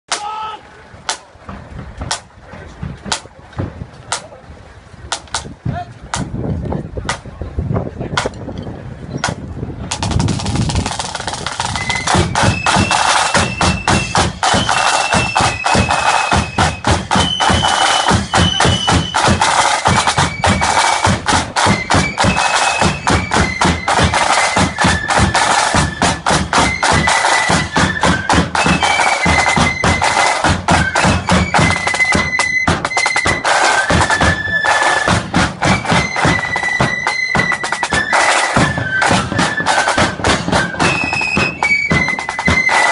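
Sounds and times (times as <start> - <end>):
rattling side drums: 1.1 - 4.3, 9.2 - 42.9
bass drum: 9.3 - 34.5
shrill flute melody: 11.6 - 42.9.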